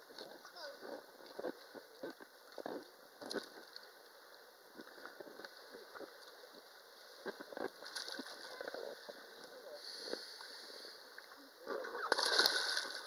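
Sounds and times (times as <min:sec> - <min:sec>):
water lapping around rubber ring: 0:04.8 - 0:09.6, 0:11.1 - 0:13.0
sharp splashes: 0:12.0 - 0:13.0.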